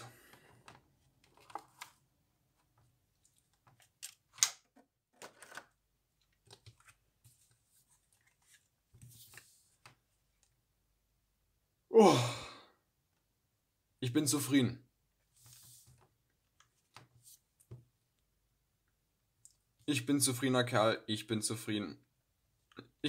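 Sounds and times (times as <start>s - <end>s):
short falling vocal sound: 11.9s - 12.6s.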